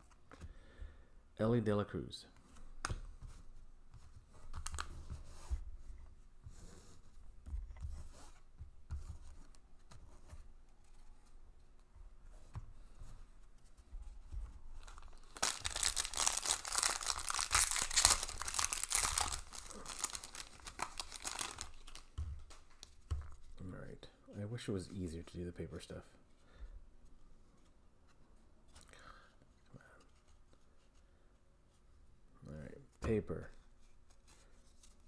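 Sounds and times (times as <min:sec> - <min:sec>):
cards shuffling and knocking: 0:06.5 - 0:11.4, 0:12.3 - 0:23.6
foil wrapper tearing and crinkling: 0:14.8 - 0:22.1.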